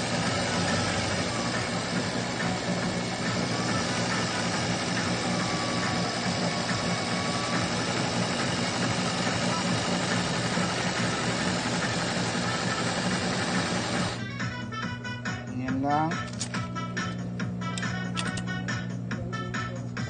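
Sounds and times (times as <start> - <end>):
sewing machine running: 0.0 - 14.3.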